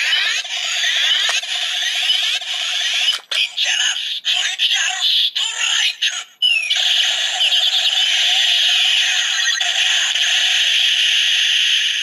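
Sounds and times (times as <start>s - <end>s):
tinny electronic toy sound effects: 0.0s - 12.0s.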